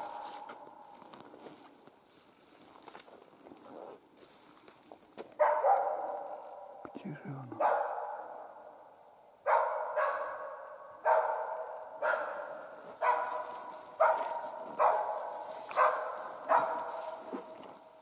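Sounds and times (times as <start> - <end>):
dog barking with echo: 0.0 - 0.9, 5.4 - 6.8, 7.6 - 17.6.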